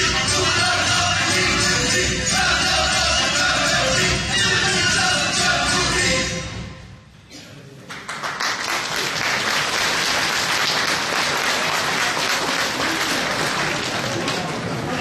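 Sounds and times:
music: 0.0s - 7.1s
audience applause: 7.9s - 15.0s.

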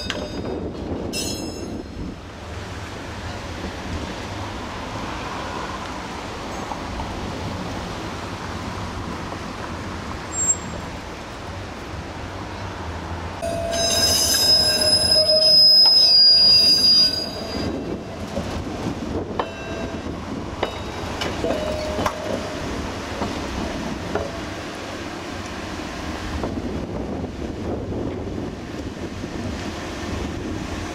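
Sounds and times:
streetcar wheels squealing: 10.2s - 11.0s, 13.4s - 18.4s, 19.4s - 22.8s.

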